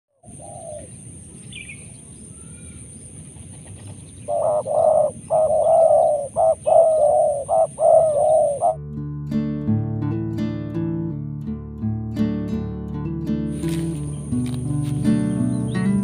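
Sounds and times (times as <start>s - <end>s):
dove cooing: 0.2s - 1.9s, 3.6s - 8.8s.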